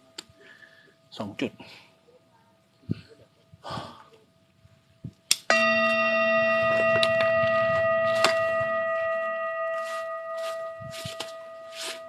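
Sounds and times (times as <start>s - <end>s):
metal bell ringing: 5.5s - 12.0s.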